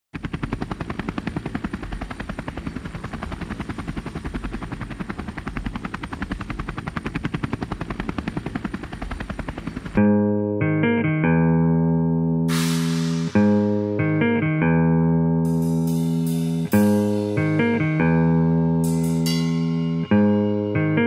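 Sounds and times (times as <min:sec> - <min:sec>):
helicopter rotor blades chopping: 0:00.2 - 0:10.1, 0:12.5 - 0:14.4, 0:15.5 - 0:21.0
band with ringing guitar chords: 0:10.0 - 0:21.0.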